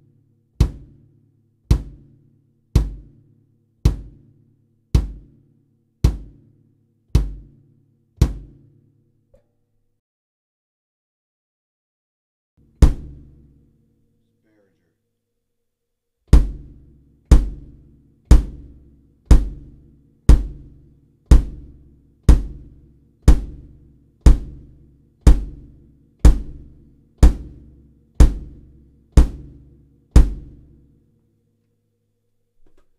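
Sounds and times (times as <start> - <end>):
kick drum thumps: 0.6 - 1.0, 1.7 - 3.2, 3.8 - 4.3, 4.9 - 5.4, 6.0 - 6.5, 7.1 - 7.6, 8.2 - 8.6, 12.8 - 13.3, 16.3 - 30.7.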